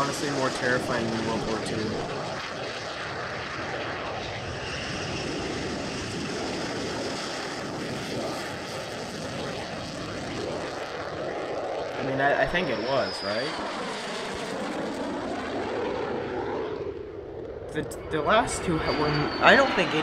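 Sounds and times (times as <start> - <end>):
jet engine rushing: 0.0 - 20.0
high whine: 7.6 - 13.7, 17.5 - 20.0.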